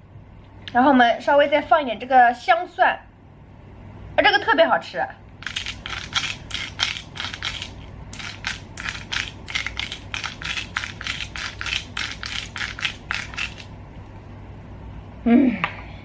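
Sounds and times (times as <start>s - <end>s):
spice grinder gritty rasps: 5.4s - 13.7s.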